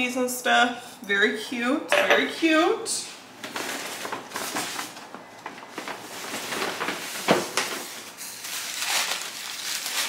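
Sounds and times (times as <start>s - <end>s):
packing paper rustling: 3.5s - 10.0s.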